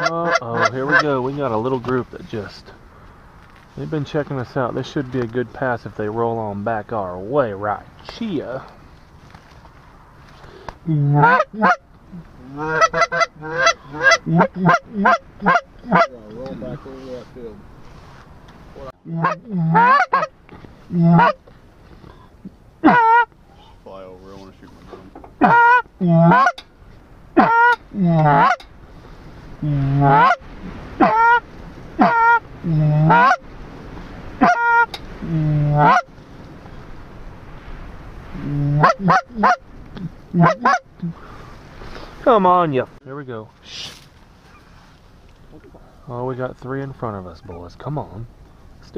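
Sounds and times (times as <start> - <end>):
goose call honks: 0.0 - 1.2, 11.0 - 16.8, 19.1 - 20.3, 20.9 - 21.4, 22.8 - 23.3, 25.4 - 26.6, 27.4 - 28.7, 29.6 - 31.4, 32.0 - 33.4, 34.4 - 36.1, 38.4 - 41.2.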